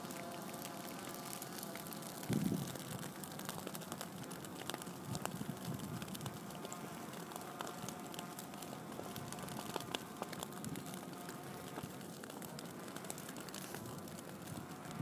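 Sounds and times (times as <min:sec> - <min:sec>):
dry grass crackling and popping: 0:00.0 - 0:15.0
faint steady whine: 0:00.0 - 0:15.0.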